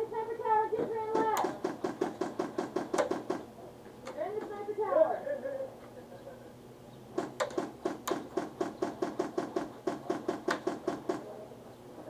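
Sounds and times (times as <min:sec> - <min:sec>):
airsoft gun rapid clacks: 0:01.2 - 0:03.5, 0:07.2 - 0:11.3.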